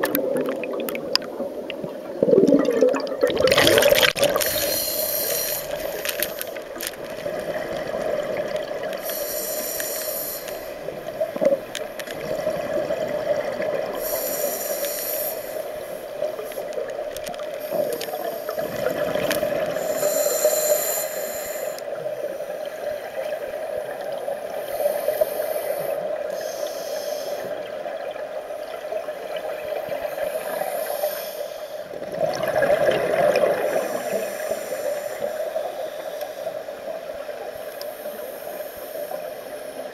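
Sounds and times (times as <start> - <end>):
gurgling bubbles: 0.0 - 9.3, 10.8 - 14.4, 16.1 - 20.3, 32.0 - 34.4
regulator breathing hiss: 4.4 - 6.9, 9.0 - 12.1, 14.0 - 16.7, 17.6 - 18.9, 19.7 - 23.4, 24.5 - 27.7, 29.9 - 31.9, 33.6 - 36.9, 37.5 - 39.9.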